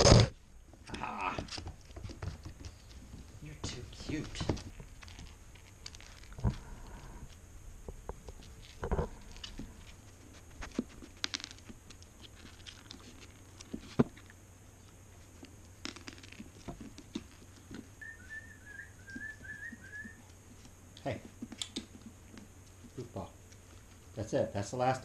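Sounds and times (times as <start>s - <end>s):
puppy paws tapping on wooden floor: 0.0s - 7.1s
puppy eating kibble: 0.7s - 18.0s
high chirps: 18.0s - 20.3s.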